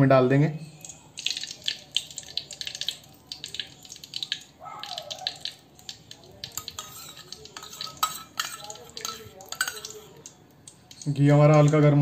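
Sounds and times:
hot ghee crackling: 0:00.3 - 0:12.0
steel bowl scraping pan: 0:06.4 - 0:10.2.

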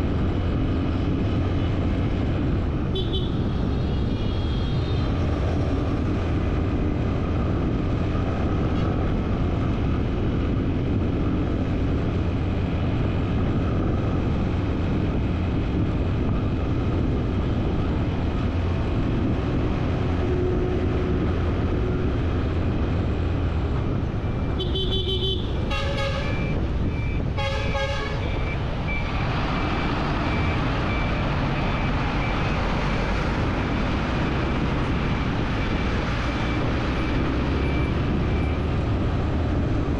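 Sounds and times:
vehicle rumble and wind noise: 0:00.0 - 0:39.9
vehicle horn honks: 0:24.6 - 0:26.4, 0:27.4 - 0:28.3.

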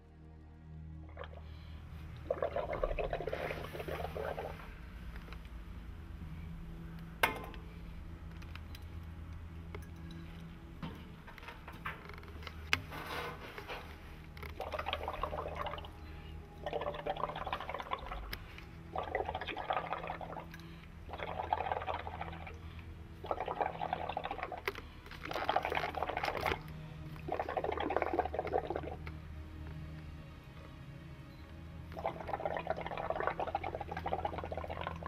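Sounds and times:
steady low hum: 0:00.0 - 0:25.3
bubbling soapy water: 0:02.2 - 0:04.7, 0:14.5 - 0:15.9, 0:16.6 - 0:18.3, 0:18.9 - 0:20.5, 0:21.1 - 0:22.5, 0:23.2 - 0:24.6, 0:25.2 - 0:26.6, 0:27.3 - 0:29.0, 0:32.0 - 0:35.0.

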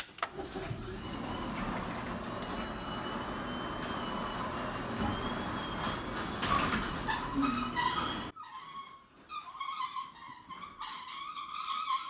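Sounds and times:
garage door opener running: 0:00.3 - 0:08.4.

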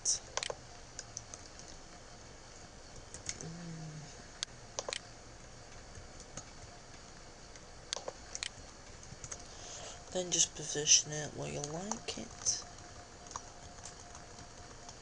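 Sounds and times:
mouse and keyboard clicks: 0:04.8 - 0:05.0, 0:07.9 - 0:08.6.

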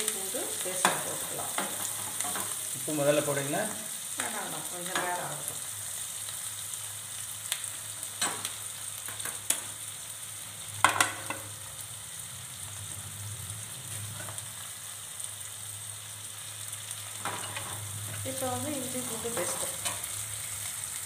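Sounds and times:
vegetables sizzling in oil: 0:00.0 - 0:21.0
metal spatula scraping a pan: 0:17.2 - 0:18.4.

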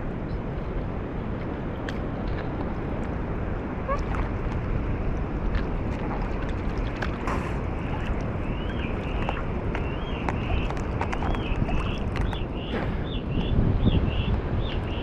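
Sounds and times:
wind rumbling on microphone: 0:00.0 - 0:15.0
water sloshing: 0:01.8 - 0:12.9.

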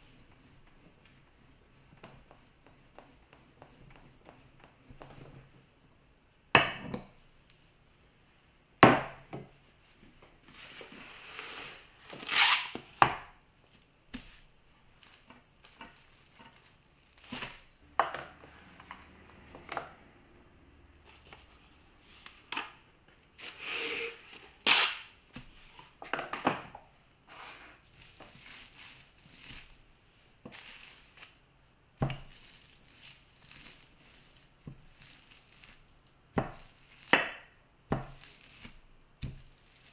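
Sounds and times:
plastic cling wrap crinkling: 0:13.7 - 0:17.9, 0:28.0 - 0:29.9, 0:30.5 - 0:31.5, 0:32.2 - 0:37.2, 0:38.0 - 0:39.9.

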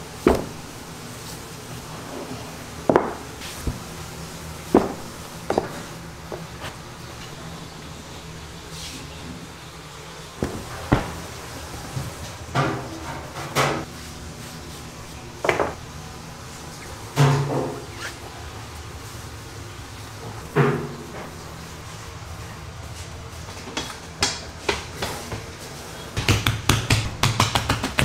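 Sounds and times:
rolling pin rolling dough: 0:00.0 - 0:06.8
low kitchen hum: 0:00.0 - 0:28.0
baking tools knocking on wooden bench: 0:02.9 - 0:03.8, 0:04.7 - 0:06.4.

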